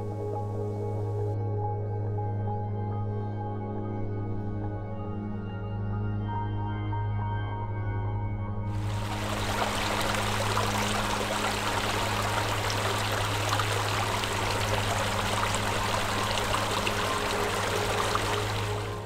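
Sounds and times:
low hum: 8.8 - 19.0
stream flowing over rocks: 8.8 - 19.0.

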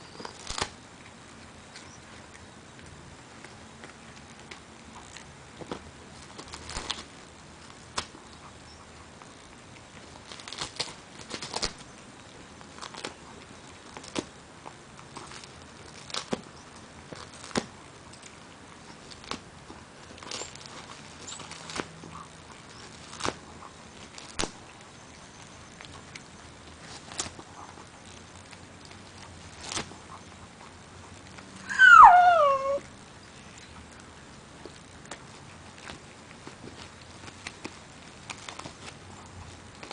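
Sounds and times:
dog chewing dry fish chew: 0.0 - 39.9
paper rustling: 10.0 - 11.9, 35.8 - 39.9
dog whining: 31.5 - 32.9.

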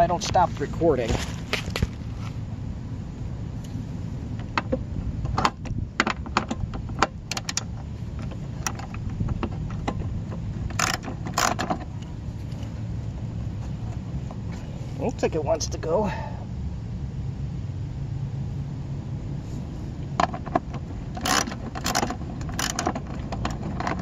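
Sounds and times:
socket ratchet clicking: 10.7 - 11.8, 21.2 - 23.6.

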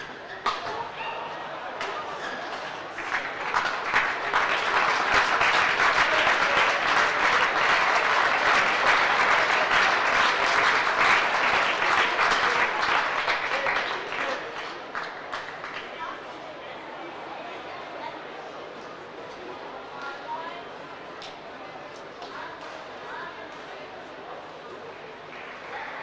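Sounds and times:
crowd applauding: 2.5 - 16.0.

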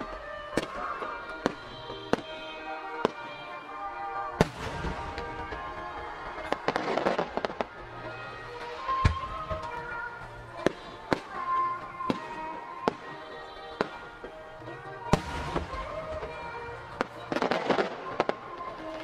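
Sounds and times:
background music: 0.0 - 19.0
firework bangs: 0.0 - 19.0
firework crackles: 0.0 - 19.0.

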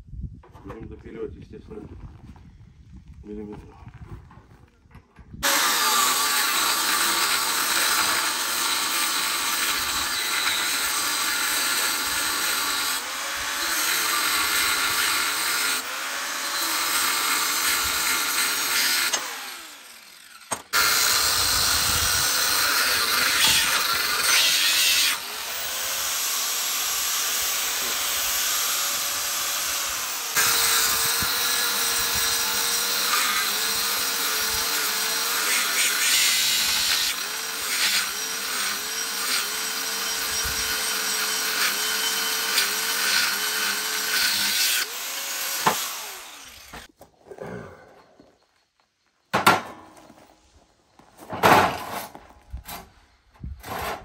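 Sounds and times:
angle grinder cutting steel: 5.4 - 46.9.

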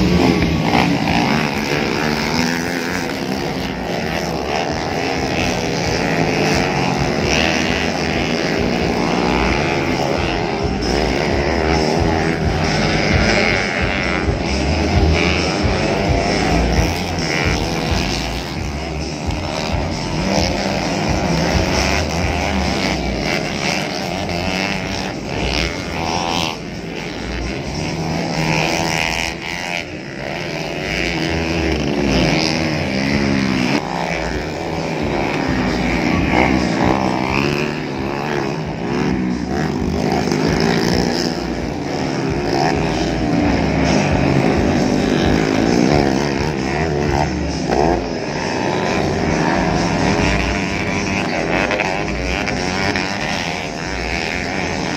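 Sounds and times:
dirt bike engines racing: 0.0 - 54.9.

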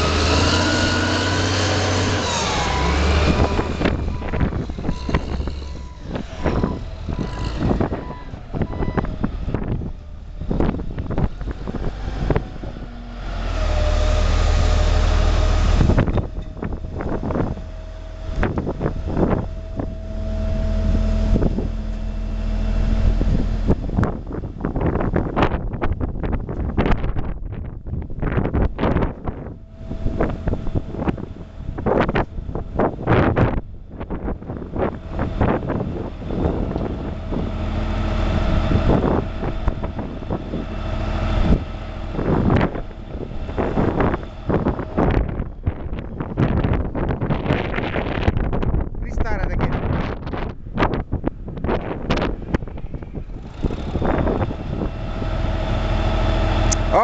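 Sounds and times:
low rumble: 0.0 - 57.0
wind buffeting microphone: 0.0 - 57.0
steady machine hum: 15.9 - 25.7.

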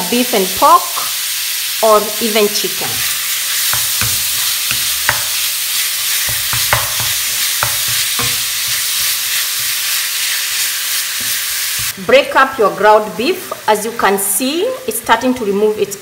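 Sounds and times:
meat sizzling in a pan: 0.0 - 12.0
spatula scraping a pan: 2.8 - 12.0.

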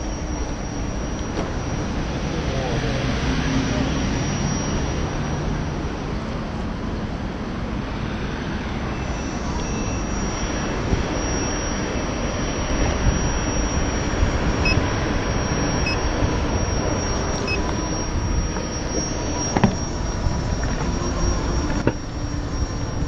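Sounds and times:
faint high whine: 0.0 - 23.0
wind rushing over microphone: 0.0 - 23.0
short high beeps: 8.9 - 22.1.

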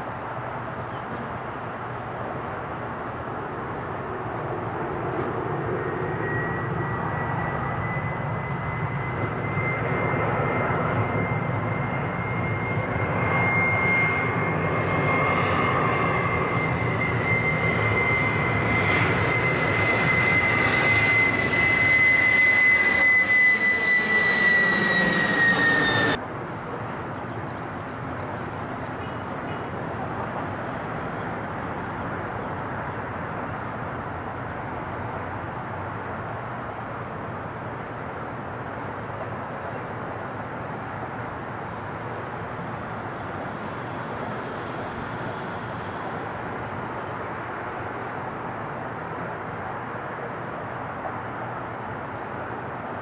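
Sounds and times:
jet engines passing overhead: 0.0 - 53.0.

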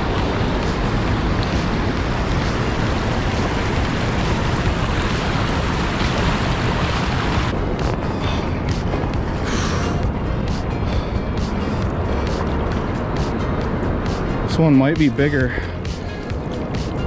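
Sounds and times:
river water rushing over rapids: 0.0 - 7.6
wind rumbling on microphone: 0.0 - 17.0.

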